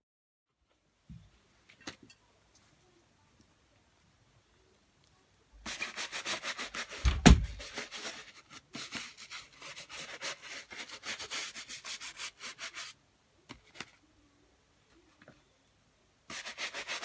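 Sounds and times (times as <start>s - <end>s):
brush scrubbing a sneaker: 5.6s - 13.0s, 16.3s - 17.0s
loud thump: 7.0s - 7.6s.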